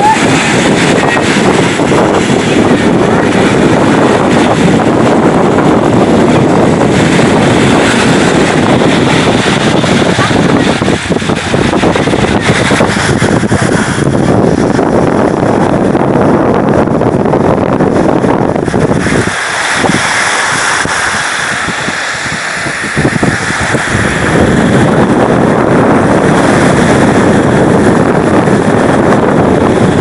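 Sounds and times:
small waves washing onto sand: 0:00.0 - 0:30.0
wind blowing across microphone: 0:00.0 - 0:30.0.

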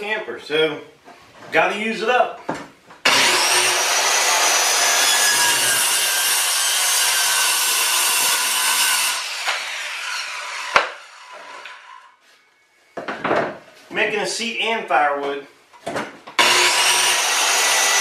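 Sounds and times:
circular saw cutting wood: 0:03.0 - 0:12.2, 0:16.4 - 0:18.0.

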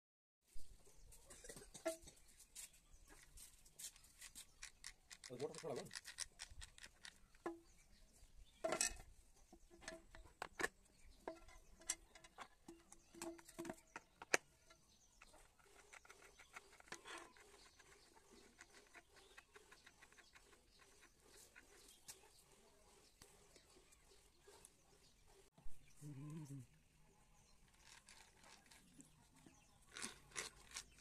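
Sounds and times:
small plastic and metal parts clicking: 0:04.2 - 0:07.5.

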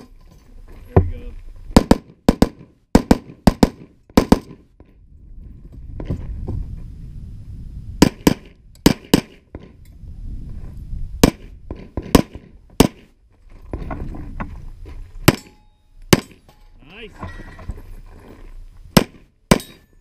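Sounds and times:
gunshots: 0:01.7 - 0:04.6, 0:08.0 - 0:09.4, 0:11.2 - 0:13.1, 0:18.9 - 0:19.8.

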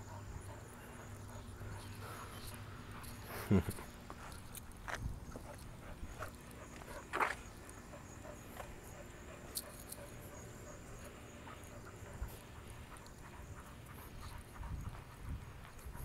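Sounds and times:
footsteps on pavement: 0:04.0 - 0:08.9.

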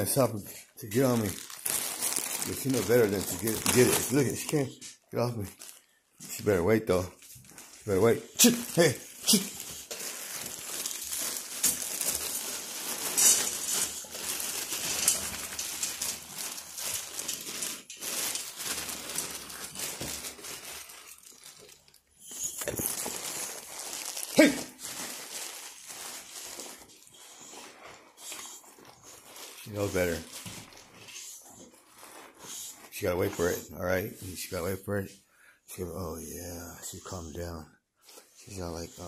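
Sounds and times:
plastic bag crinkling: 0:00.0 - 0:34.8.

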